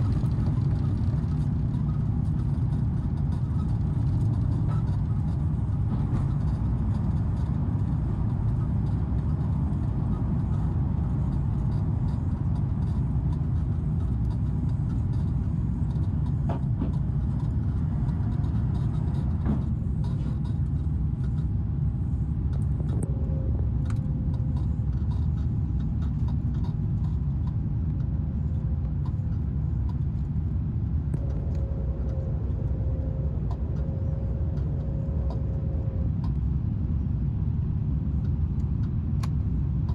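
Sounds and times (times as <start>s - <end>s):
airliner cabin rumble: 0.0s - 39.9s
faint steady hum: 0.0s - 39.9s.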